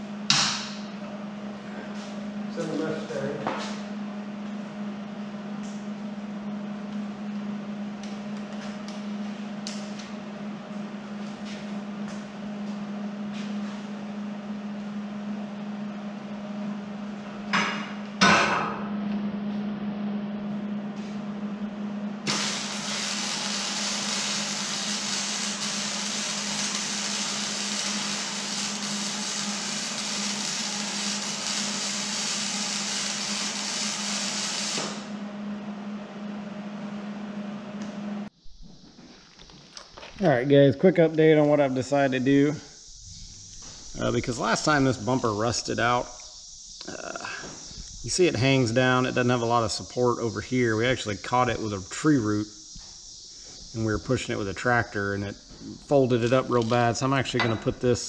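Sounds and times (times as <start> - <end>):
steady low hum: 0.0 - 58.0
welder crackling hiss: 22.3 - 35.1, 41.4 - 58.0
loud metal clank: 57.4 - 57.8.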